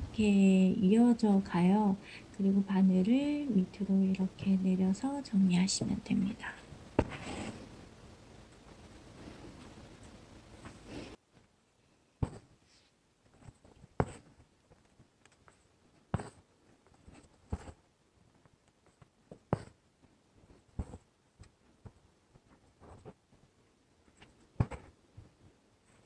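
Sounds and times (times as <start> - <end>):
soft brushing: 6.6 - 7.8, 12.2 - 14.8
needle popping through fabric: 15.4 - 16.4.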